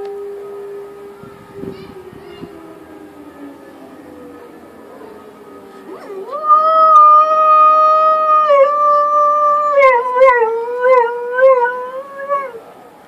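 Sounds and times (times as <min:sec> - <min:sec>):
dog howling and yelping: 0:05.9 - 0:12.6.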